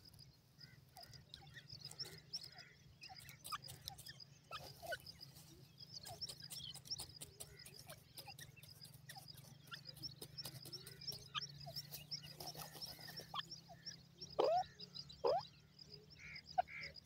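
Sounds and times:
bird scratching in dry soil: 0:03.2 - 0:13.4.

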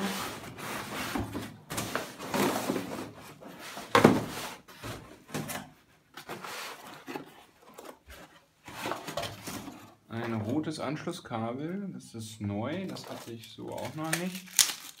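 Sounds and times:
cardboard box scraping and rustling: 0:00.0 - 0:05.1, 0:06.2 - 0:10.6.

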